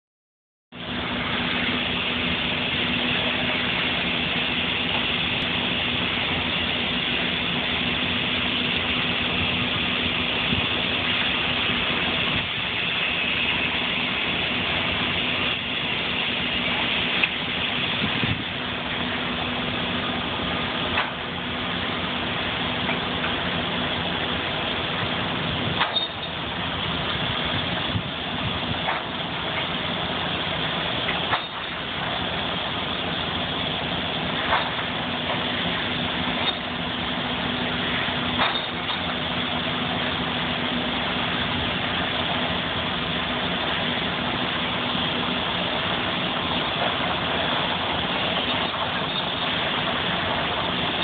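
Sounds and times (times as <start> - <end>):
sawmill machinery humming: 0.7 - 51.0.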